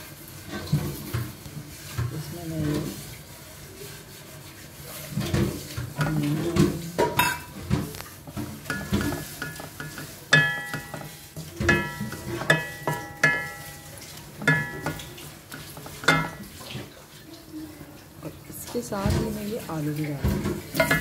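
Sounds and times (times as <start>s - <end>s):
onions sizzling in oil: 0.0s - 17.2s, 17.9s - 21.0s
spatula knocking on pan: 5.2s - 16.6s, 20.3s - 21.0s.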